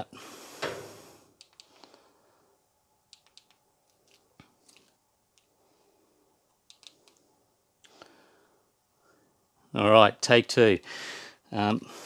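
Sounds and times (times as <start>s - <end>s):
faint small clicks and taps: 1.4s - 2.0s, 3.1s - 5.5s, 6.5s - 7.2s.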